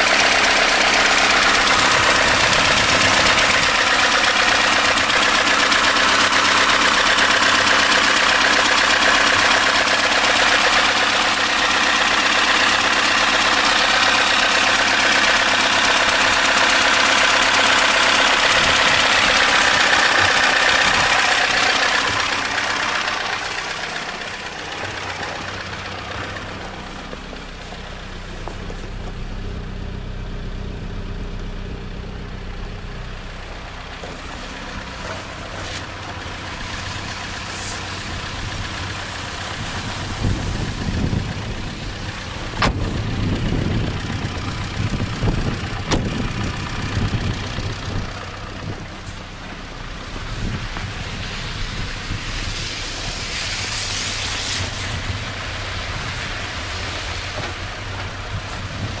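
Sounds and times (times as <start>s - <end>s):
car engine idling: 0.0s - 59.0s
low thumps and rumbles: 0.1s - 53.7s.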